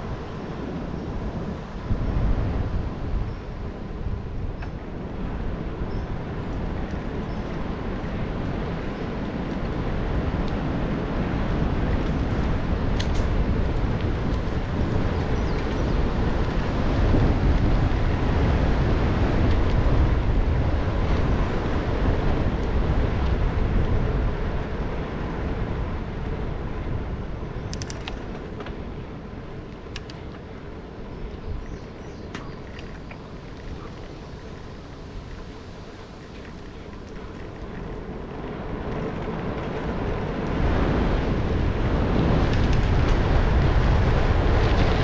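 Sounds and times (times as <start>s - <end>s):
bicycle tyres on pavement: 0.0s - 45.0s
wind on microphone: 0.0s - 45.0s
faint clicks: 27.7s - 28.8s, 29.7s - 30.5s.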